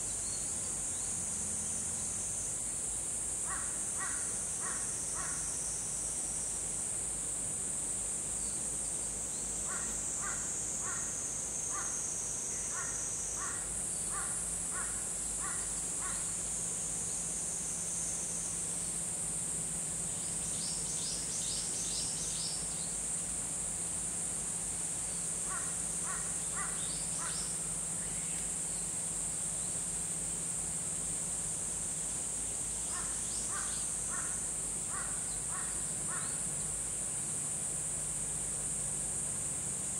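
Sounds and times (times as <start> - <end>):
steady high-pitched buzz: 0.0 - 39.9
birds cawing: 3.5 - 5.5, 9.7 - 12.0, 12.6 - 16.3, 25.5 - 27.4, 32.9 - 36.4.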